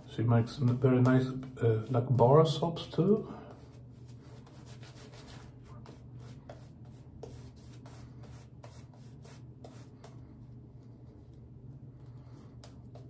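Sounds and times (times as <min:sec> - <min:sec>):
shaving brush scrubbing on beard: 0:03.1 - 0:11.4.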